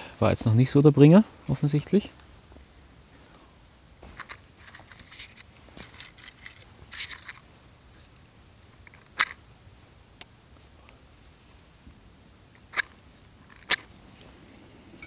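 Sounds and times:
dry grass and twigs rustling: 2.2 - 9.4.

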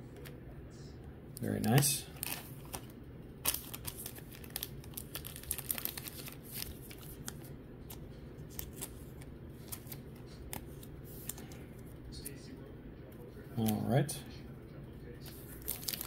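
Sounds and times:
cards flicking and rustling: 1.5 - 12.4, 15.3 - 16.0.

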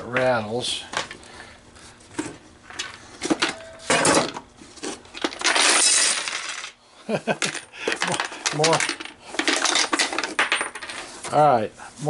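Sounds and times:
coins rattling in a hopper: 5.2 - 6.8, 7.4 - 11.1.

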